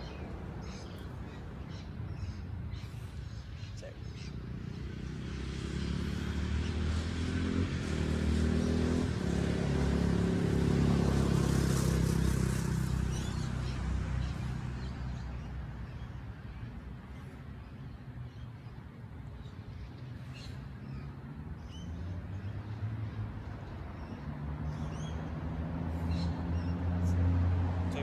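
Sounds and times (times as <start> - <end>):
vehicle engine passing: 4.3 - 15.6, 21.2 - 28.0.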